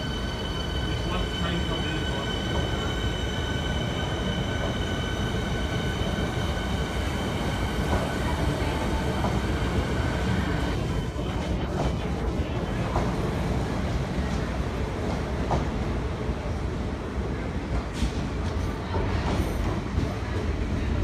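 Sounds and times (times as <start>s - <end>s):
high-pitched train whine: 0.0s - 11.4s
train wheels rumbling on rails: 0.0s - 21.0s.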